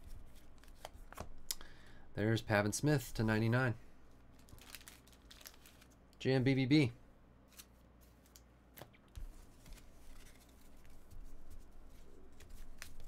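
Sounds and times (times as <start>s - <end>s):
card stacks rustling: 7.5s - 13.0s.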